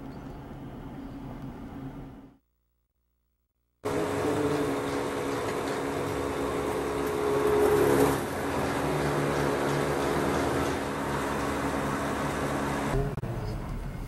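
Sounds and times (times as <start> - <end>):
car engine and road noise: 3.8 - 14.0.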